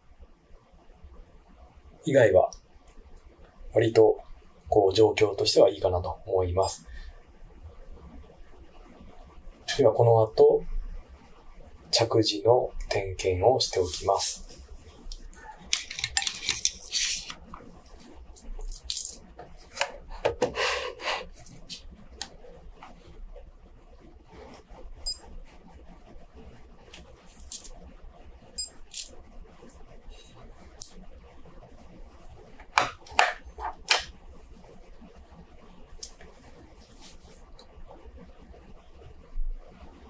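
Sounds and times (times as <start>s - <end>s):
metal watch bracelet clinking: 27.3s - 27.7s.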